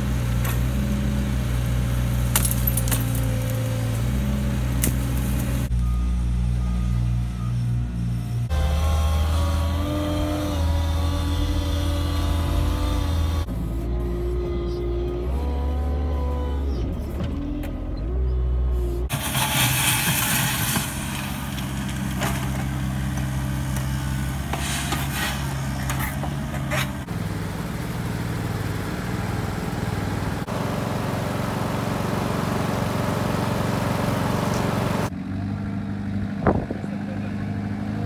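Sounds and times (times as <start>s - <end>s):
compact loader engine: 0.0s - 38.0s
wheel loader engine: 0.0s - 38.0s
mini excavator scraping gravel: 19.1s - 27.1s.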